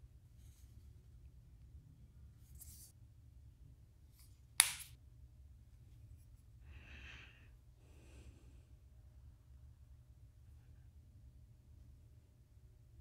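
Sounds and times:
soft breaths: 6.4 - 9.1.

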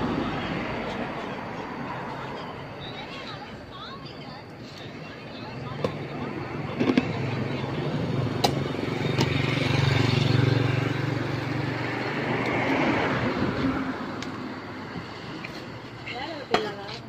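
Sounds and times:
vehicle engine passing by: 6.2 - 15.4.

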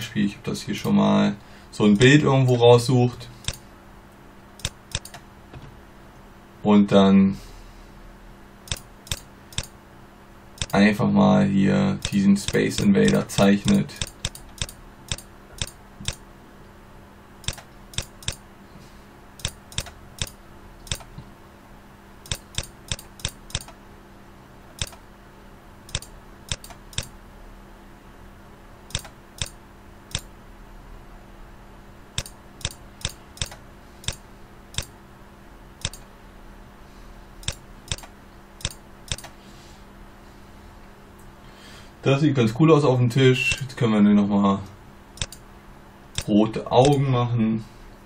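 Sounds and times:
faint steady hum: 0.0 - 48.0
mouse button clicking: 4.6 - 5.2, 17.4 - 18.4, 19.4 - 21.1, 22.3 - 23.8, 24.8 - 25.0, 25.9 - 27.1, 28.9 - 30.3, 37.4 - 39.3.

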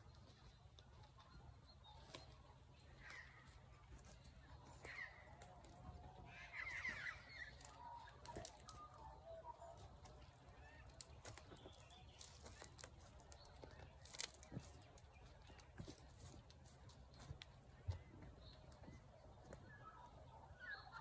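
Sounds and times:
faint bird calls: 0.0 - 16.5.

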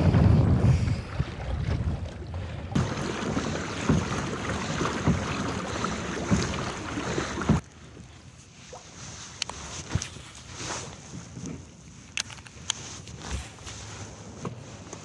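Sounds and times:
wind buffeting microphone: 0.0 - 7.6
water and kayak hull noise: 0.0 - 15.0
low thumps: 2.8 - 7.6.

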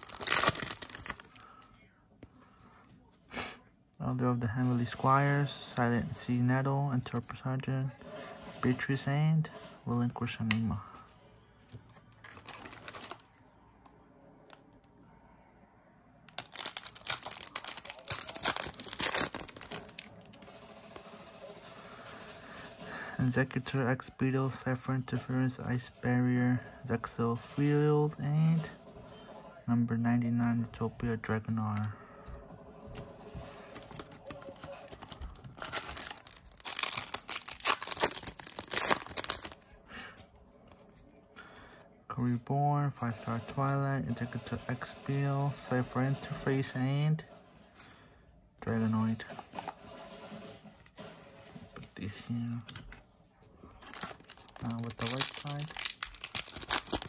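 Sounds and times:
foil wrapper tearing and crinkling: 0.0 - 1.5, 12.2 - 13.3, 16.3 - 20.3, 33.7 - 39.6, 53.8 - 57.0.

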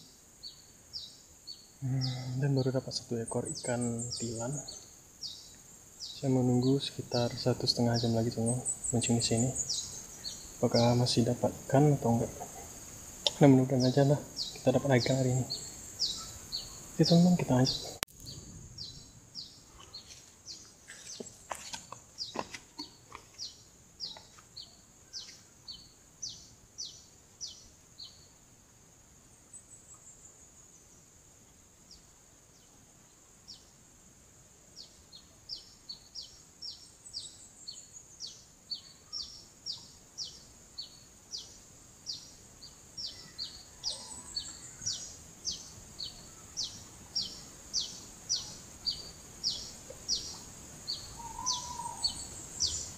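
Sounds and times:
bird calling in short high notes: 51.2 - 52.2.

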